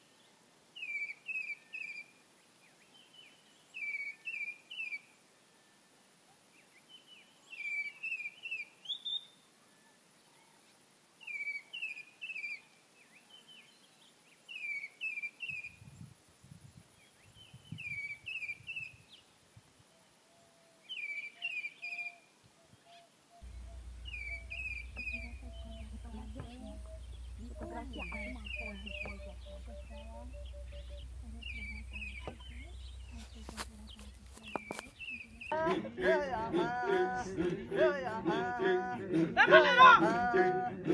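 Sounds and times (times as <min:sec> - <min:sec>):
bird chirping: 0:22.9 - 0:35.6
low rumble: 0:23.4 - 0:38.2.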